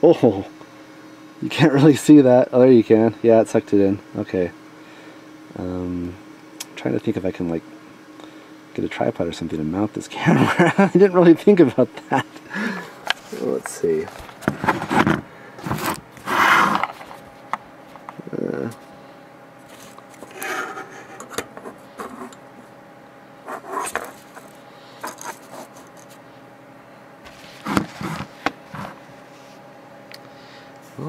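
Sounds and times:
faint steady hum: 0.0s - 31.0s
objects scraping and knocking: 14.0s - 17.2s, 27.3s - 29.0s.

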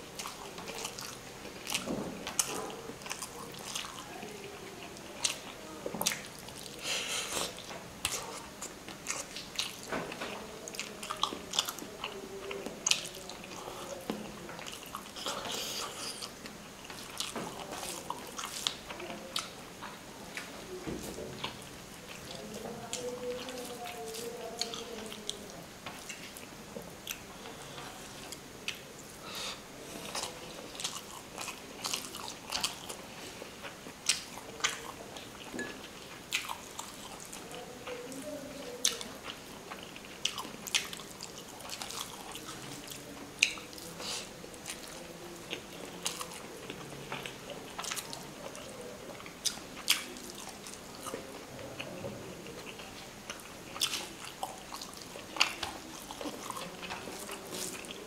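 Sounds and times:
person chewing and smacking: 0.0s - 51.9s, 52.5s - 58.0s.

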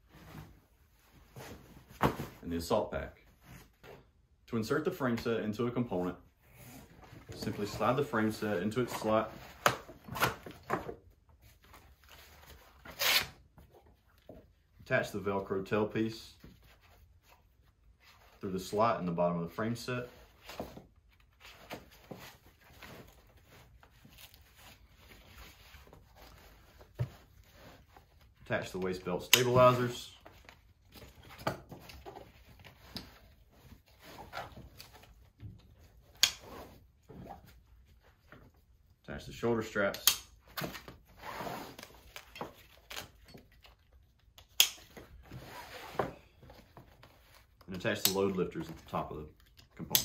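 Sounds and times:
rustling of nylon fabric and straps: 40.6s - 44.0s, 45.0s - 49.8s.

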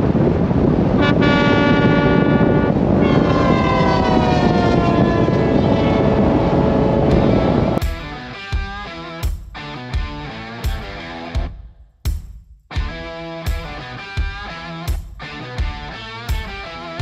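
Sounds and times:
airplane engines with high whine: 2.8s - 7.8s.

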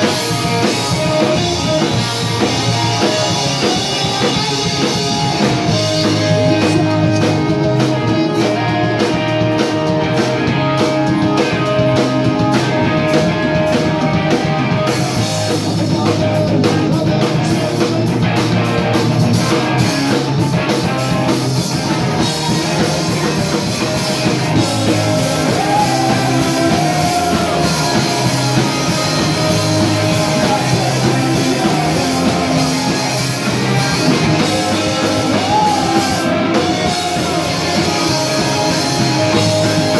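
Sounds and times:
person singing: 0.0s - 9.9s, 22.4s - 39.9s
bass guitar: 0.0s - 39.9s
drum kit: 0.0s - 39.9s
electric guitars: 0.0s - 39.9s.

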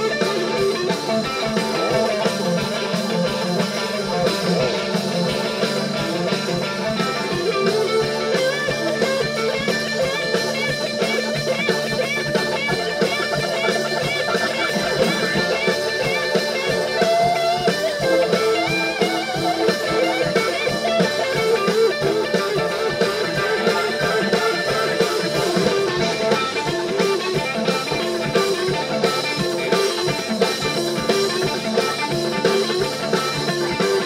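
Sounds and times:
bass: 0.0s - 34.0s
drums: 0.0s - 34.0s
electric guitar lines: 0.0s - 34.0s
organ chords: 0.0s - 34.0s.

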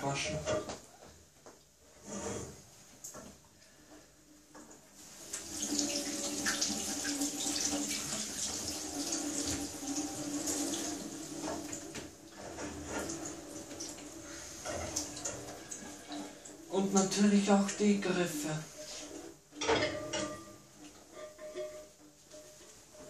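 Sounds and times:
tap water running into sink: 4.6s - 16.4s
water splashing over a pot: 5.0s - 12.0s.

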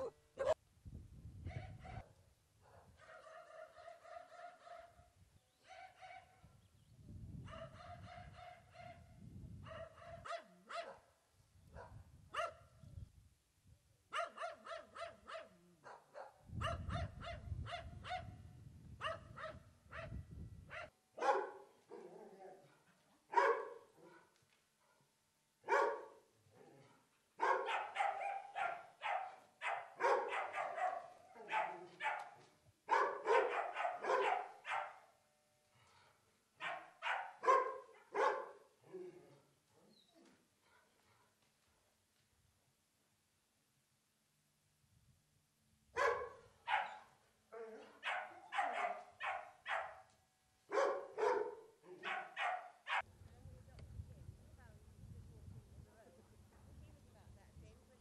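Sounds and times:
dogs barking: 0.0s - 0.6s, 2.7s - 5.0s, 9.7s - 11.0s, 14.2s - 18.4s, 20.7s - 24.3s, 25.7s - 26.1s, 27.4s - 35.0s, 36.6s - 38.6s, 46.0s - 47.0s, 47.9s - 50.1s, 50.7s - 53.1s
high-pitched dog yelping: 0.0s - 0.6s, 14.2s - 15.5s, 27.4s - 32.3s, 46.0s - 47.1s, 47.8s - 50.0s, 50.8s - 53.1s.

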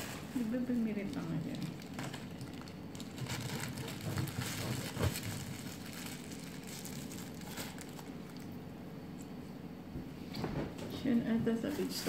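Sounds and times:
crinkling handling noises: 0.0s - 9.6s.

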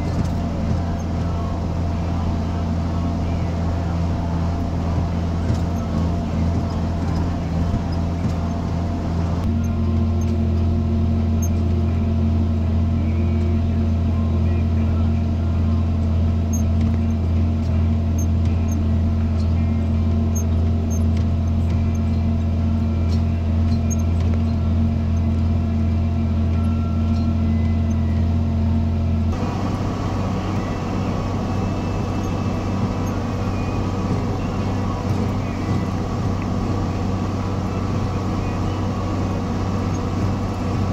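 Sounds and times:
tractor engine running: 0.0s - 40.9s.

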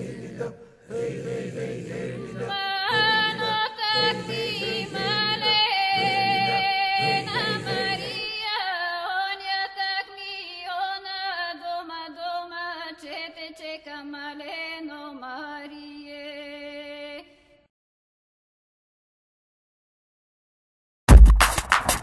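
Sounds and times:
background song: 0.0s - 8.6s.

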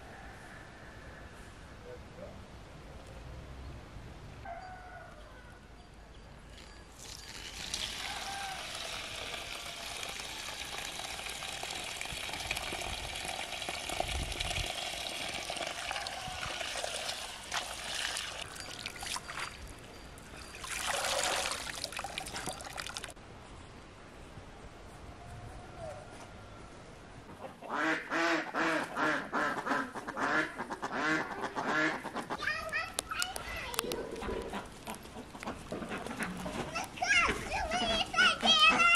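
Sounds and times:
tap water pouring into basin: 7.0s - 19.6s, 20.4s - 23.2s
greens rinsed by hand: 7.0s - 19.8s, 20.4s - 23.2s.

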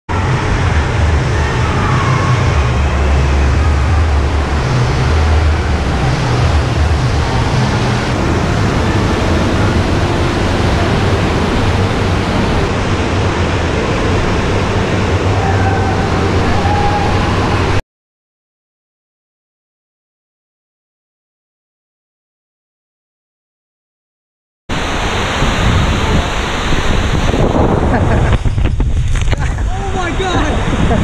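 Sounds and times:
echoing din of waterpark hall: 0.1s - 17.8s, 24.7s - 28.4s
heavy low rumble: 0.1s - 17.8s, 24.7s - 31.0s
rushing water: 0.1s - 17.8s, 24.7s - 31.0s.

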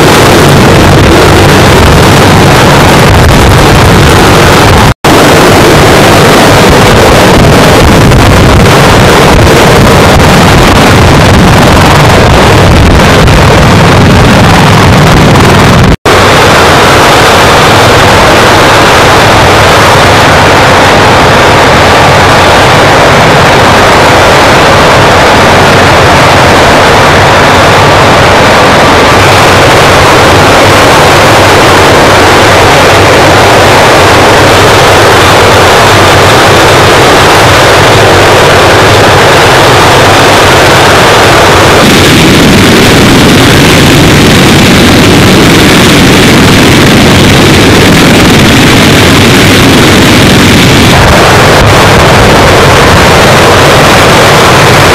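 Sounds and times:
helicopter running: 0.0s - 54.9s
rotor wash buffeting microphone: 0.0s - 54.9s.

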